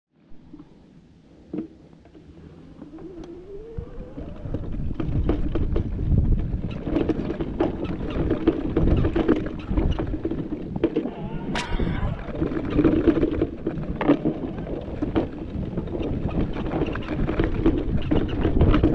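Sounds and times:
bike rattling over bumps: 1.4 - 18.9
bike tyres on dirt: 1.4 - 18.9
rising whine: 2.3 - 5.0, 11.0 - 12.6
wind on camera: 2.4 - 18.9.

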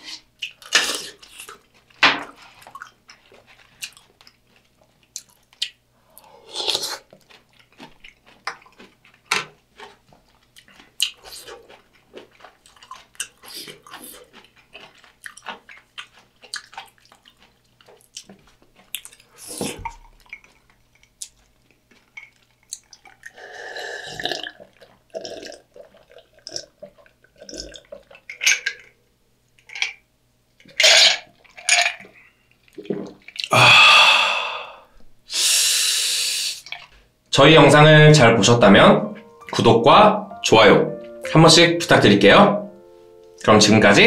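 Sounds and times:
person gulping a drink: 2.6 - 28.9, 30.7 - 35.1
loud breathy exhale: 33.5 - 36.6.

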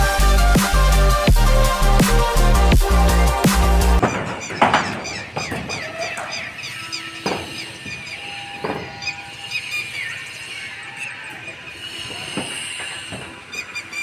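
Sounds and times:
electronic background music: 0.0 - 4.4
sharp knocks: 4.0 - 6.5, 7.2 - 9.0
high bird chirps: 4.0 - 14.0.

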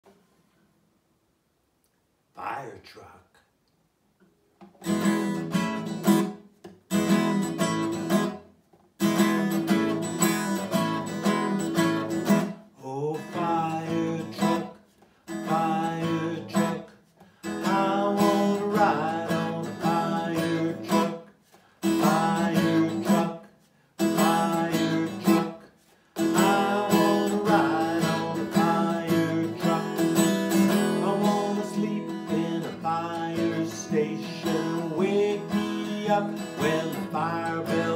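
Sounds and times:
acoustic guitar strumming chords: 4.6 - 37.9
man singing: 12.8 - 16.9, 17.5 - 37.9.

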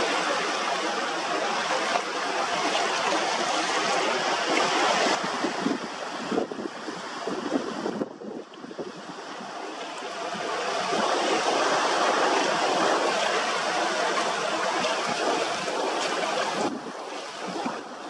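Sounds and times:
surf rushing: 0.0 - 18.0
wind over choppy water: 0.0 - 18.0.

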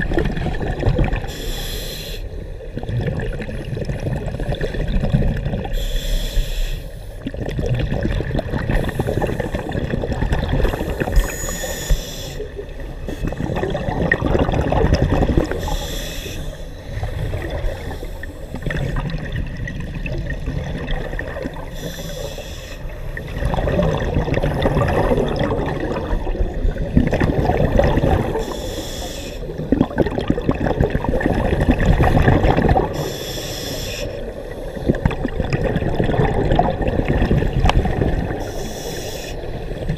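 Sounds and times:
exhaled air bubbling and gurgling: 0.0 - 39.9
regulator inhalation hiss: 1.3 - 2.3, 5.8 - 7.0, 11.2 - 12.5, 15.6 - 16.8, 21.7 - 22.9, 28.4 - 29.5, 33.0 - 34.9, 38.4 - 39.7.

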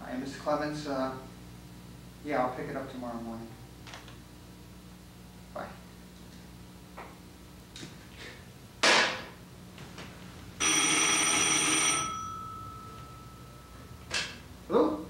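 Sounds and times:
telephone bell ringing: 10.6 - 14.1.

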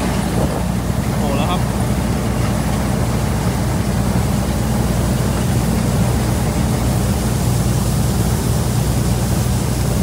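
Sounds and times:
harvester engine droning: 0.0 - 10.0.

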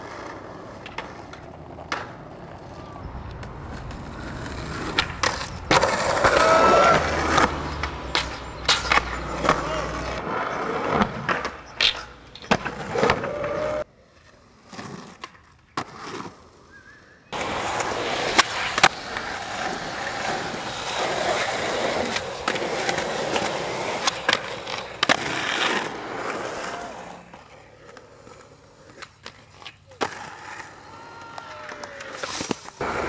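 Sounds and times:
skateboard wheels rolling on asphalt: 0.0 - 33.0
skateboard hitting the ground: 0.1 - 2.6, 3.3 - 13.7, 17.4 - 26.8.

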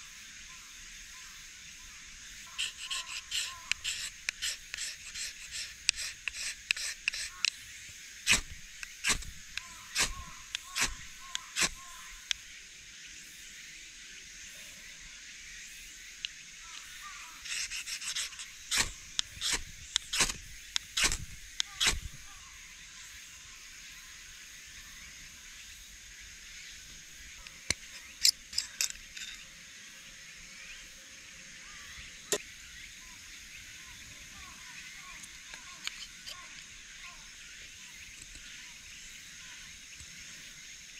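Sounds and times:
steady high hiss: 0.0 - 40.9
knife scraping ferrocerium rod: 2.5 - 7.5, 8.3 - 12.0, 16.7 - 22.1
sharp handling clicks: 2.6 - 7.6, 8.3 - 12.4, 16.2 - 22.2, 27.4 - 29.4.

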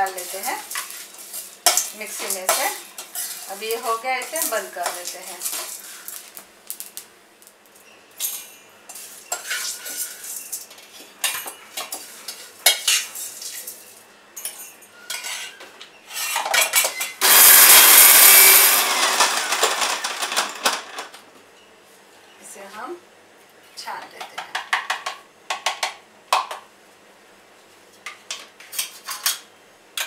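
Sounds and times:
spoon scraping metal pan: 0.0 - 6.3, 8.2 - 13.7, 14.4 - 17.1
electric grinder running: 17.2 - 20.6.

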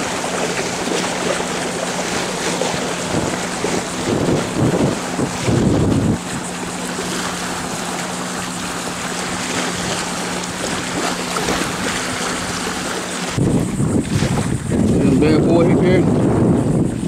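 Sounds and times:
waves lapping on sandy shore: 0.0 - 17.0
wind: 0.0 - 17.0.

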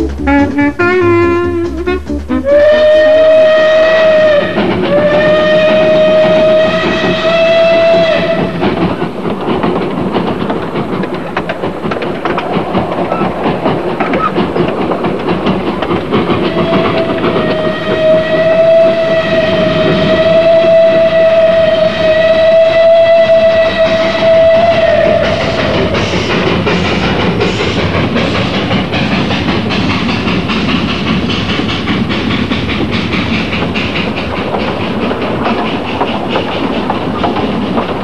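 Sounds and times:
steam locomotive whistle: 0.0 - 8.8, 16.4 - 26.3
train rattling along track: 0.0 - 38.0.

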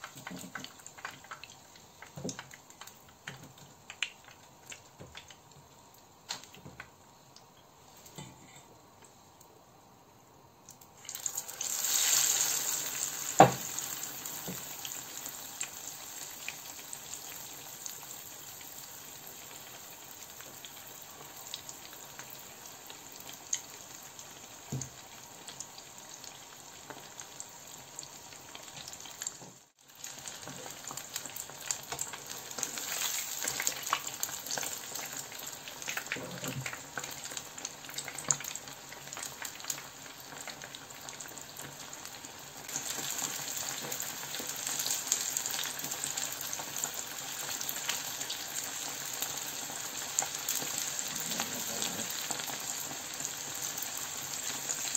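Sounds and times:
chicken frying in hot oil: 0.0 - 54.9.

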